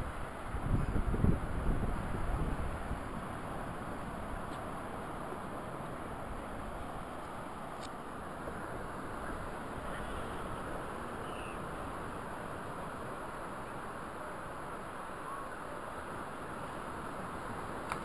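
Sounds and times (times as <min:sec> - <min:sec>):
ocean surf: 0:00.0 - 0:18.0
wind: 0:00.0 - 0:18.0
faint short bird calls: 0:09.8 - 0:11.7.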